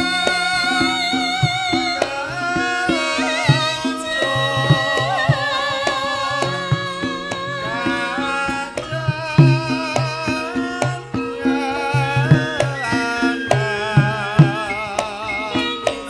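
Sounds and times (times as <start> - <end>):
woman singing with vibrato: 0.0 - 16.0.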